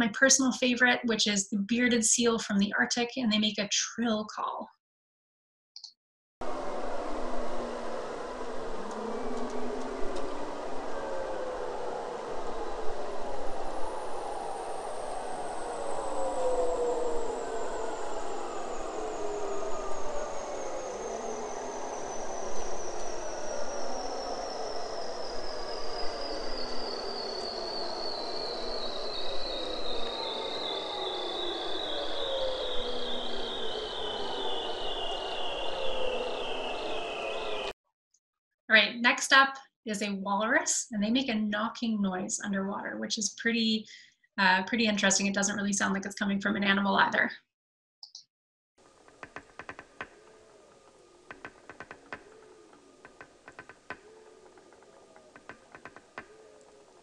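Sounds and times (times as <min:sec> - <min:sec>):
low wavering tone: 0:06.4 - 0:37.7
walrus knocking call: 0:51.3 - 0:52.4.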